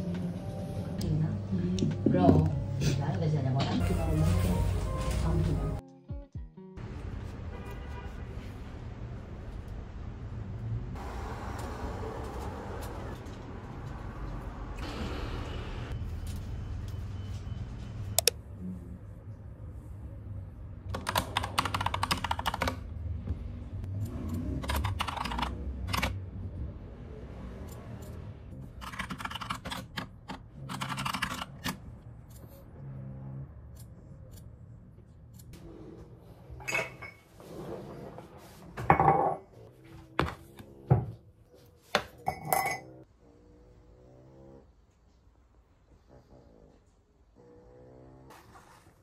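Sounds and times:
mechanical keyboard typing: 20.9 - 22.8, 24.6 - 26.2, 28.8 - 31.8
kitchen things clattering on counter: 38.8 - 39.5.

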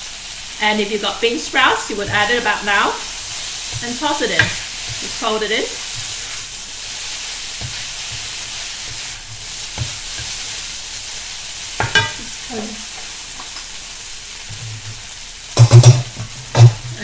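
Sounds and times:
noodles sizzling in a wok: 0.0 - 17.0
spatula knocking against wok: 3.7 - 5.1, 11.8 - 12.3.

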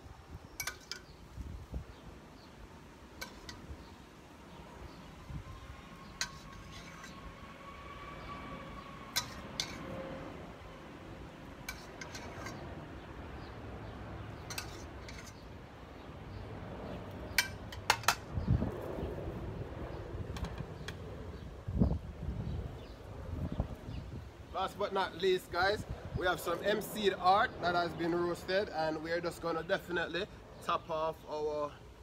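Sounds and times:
metal spoon clinking on pot: 0.6 - 1.2, 9.2 - 9.8.

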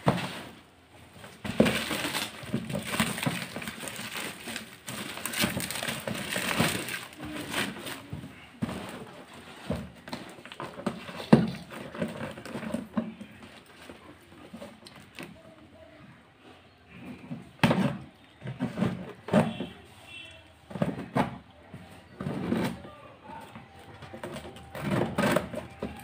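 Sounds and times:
plastic packaging crinkling: 1.4 - 9.2
scissors cutting plastic: 1.6 - 8.1.

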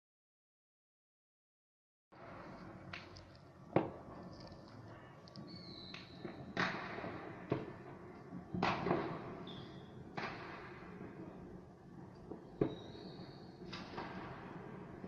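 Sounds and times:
fireworks banging: 5.6 - 15.0
firework whistle: 9.4 - 10.0, 12.5 - 13.8.

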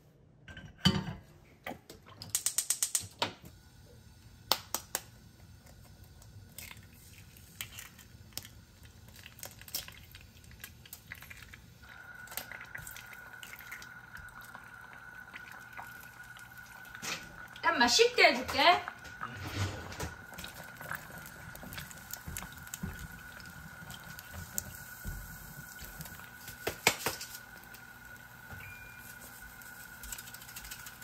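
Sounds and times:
eggs cracked against pan: 1.9 - 3.2, 4.5 - 5.8, 26.0 - 27.9
faint steady high tone: 28.5 - 29.6.

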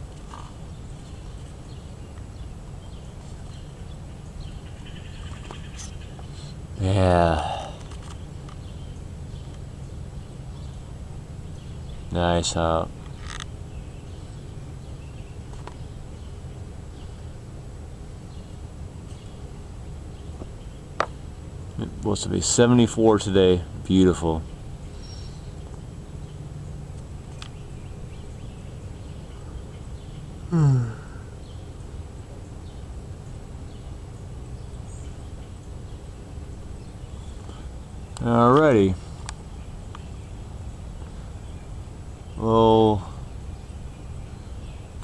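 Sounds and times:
faint bird chirps: 0.0 - 17.4, 24.4 - 26.4
steady low rumble: 0.0 - 45.0.

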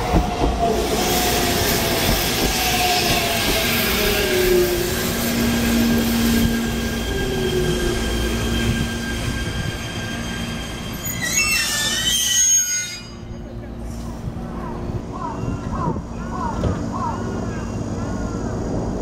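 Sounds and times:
train wheels rumbling: 0.0 - 19.0
wheels squealing: 2.7 - 13.3.

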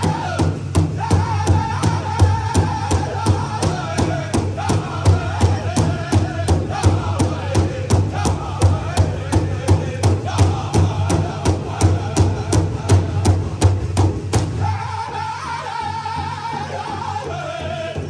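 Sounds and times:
group singing high chant: 0.0 - 13.8, 14.4 - 18.0
drum struck with sticks: 0.0 - 14.8.

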